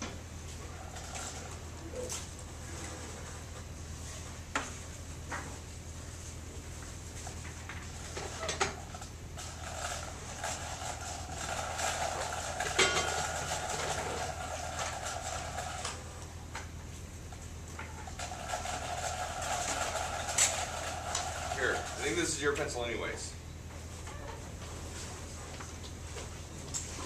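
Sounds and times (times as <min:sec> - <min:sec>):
low electrical hum: 0:00.0 - 0:27.0.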